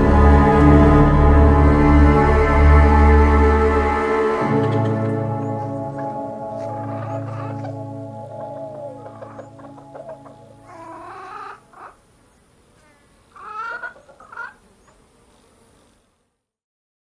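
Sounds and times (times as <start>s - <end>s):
hens clucking: 4.4s - 12.1s, 12.7s - 15.0s.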